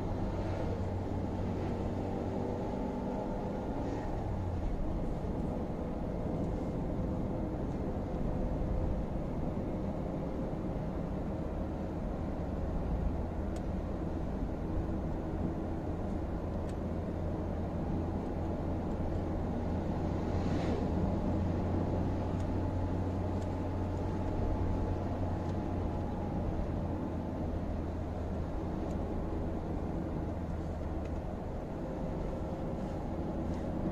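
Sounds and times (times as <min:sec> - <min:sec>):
car cabin engine and tyre hum: 0:00.0 - 0:33.9
faint light ticks: 0:06.4 - 0:06.6, 0:13.5 - 0:13.8, 0:16.1 - 0:16.8, 0:22.3 - 0:22.6, 0:23.3 - 0:24.4, 0:25.4 - 0:25.6, 0:28.8 - 0:29.0, 0:30.3 - 0:31.3, 0:32.8 - 0:33.7.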